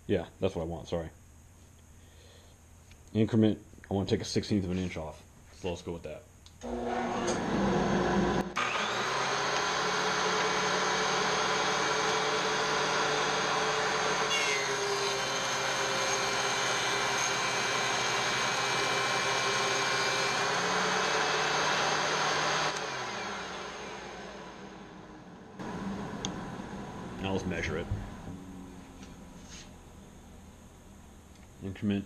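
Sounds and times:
thickness planer cutting board: 0:06.7 - 0:24.6.

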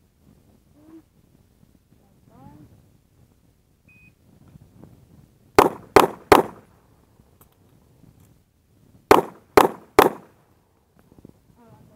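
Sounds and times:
handgun shots with echo: 0:05.6 - 0:06.6, 0:09.1 - 0:10.3.

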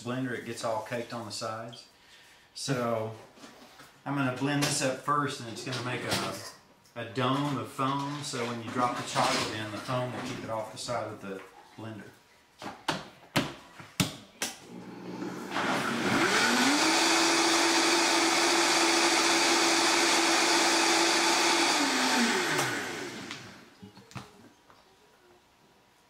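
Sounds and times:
blender motor running: 0:14.7 - 0:23.7.

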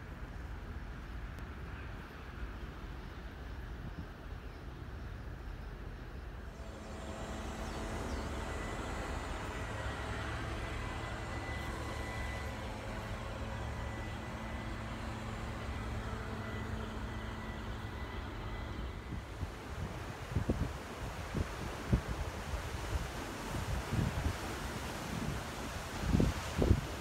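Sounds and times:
faint steady hum: 0:00.0 - 0:27.0
distant engine rumble: 0:05.4 - 0:27.0.

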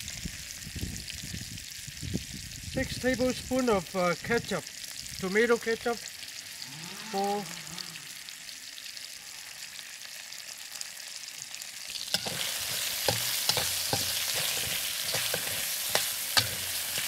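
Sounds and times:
food sizzling in a wok: 0:00.0 - 0:17.0
spatula scraping a wok: 0:12.0 - 0:17.0.

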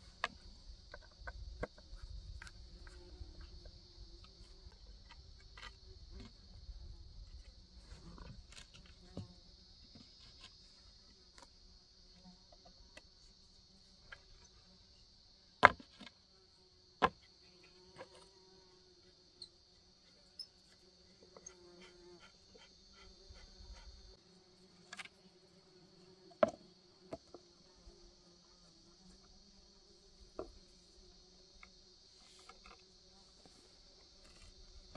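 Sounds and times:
insects buzzing: 0:00.0 - 0:34.9
wooden boards knocking and clicking: 0:15.6 - 0:16.1.

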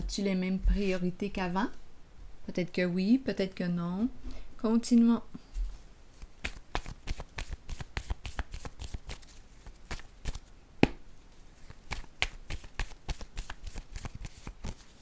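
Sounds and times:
cards being shuffled: 0:06.2 - 0:11.0, 0:11.6 - 0:15.0.

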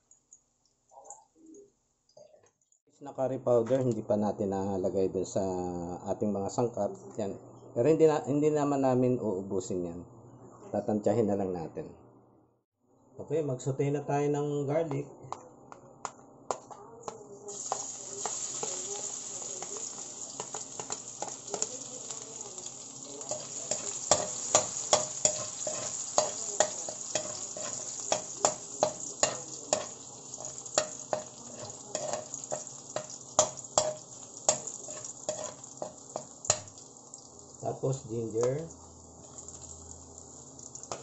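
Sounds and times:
garlic sizzling in hot oil: 0:17.5 - 0:41.0
metal spoon scraping a wok: 0:23.2 - 0:36.3.

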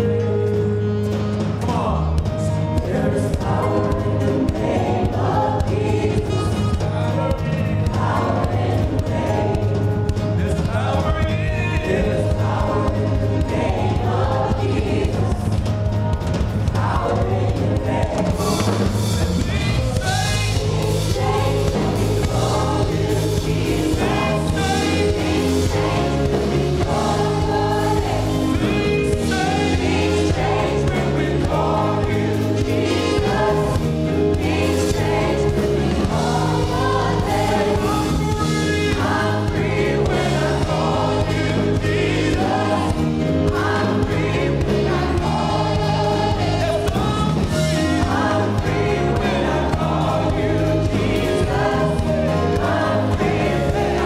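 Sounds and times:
band playing: 0:00.0 - 0:54.0
bass line: 0:00.0 - 0:54.0
group singing: 0:01.5 - 0:54.0.

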